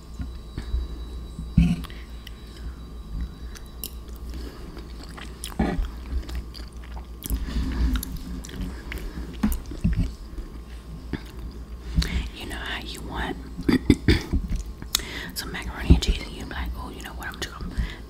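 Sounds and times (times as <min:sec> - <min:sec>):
person chewing: 0:03.5 - 0:12.2.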